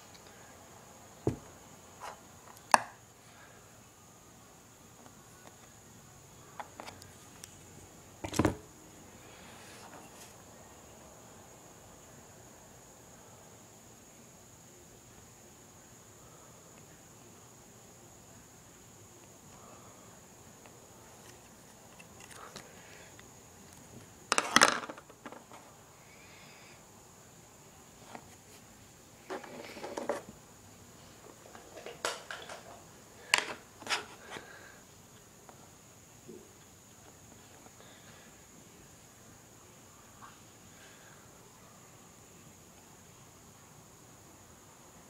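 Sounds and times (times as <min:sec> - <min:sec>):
faint high hiss: 0:00.0 - 0:45.0
loud knock on desktop: 0:01.3 - 0:01.5.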